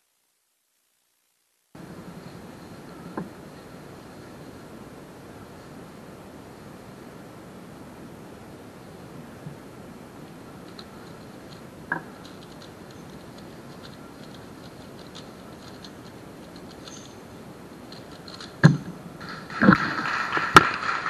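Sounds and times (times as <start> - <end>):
faint cube ticks: 10.6 - 18.6
plastic cube layers clicking: 11.5 - 17.1.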